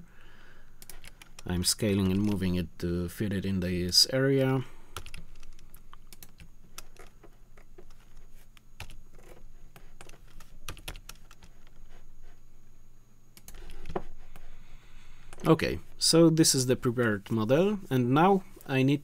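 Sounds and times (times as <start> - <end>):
low steady hum: 0.0 - 19.0
keyboard keys clicking: 9.9 - 11.7.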